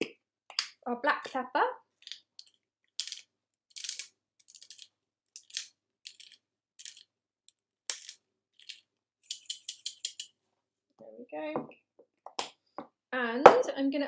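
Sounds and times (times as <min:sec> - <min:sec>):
pepper mill grinding: 0:07.9 - 0:10.3.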